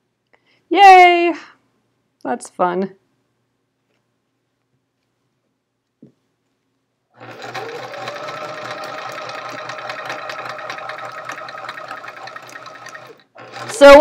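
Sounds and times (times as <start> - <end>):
sewing machine stitching: 7.2 - 14.0.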